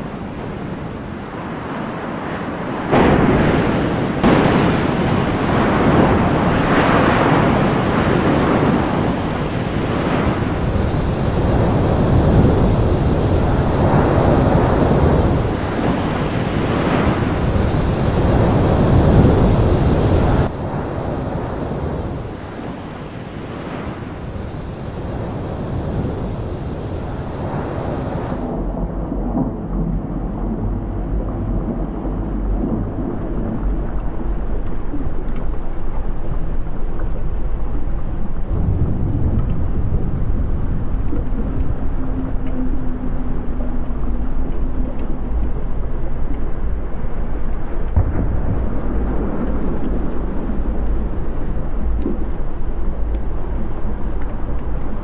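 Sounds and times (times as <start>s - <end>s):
heavy sea waves crashing: 0.0s - 28.9s
quiet low drone: 24.0s - 55.0s.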